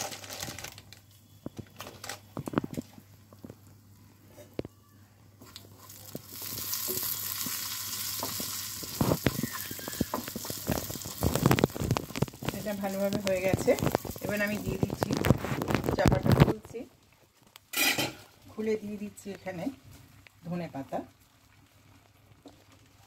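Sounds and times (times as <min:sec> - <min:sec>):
spices sizzling in oil: 0:05.4 - 0:23.0.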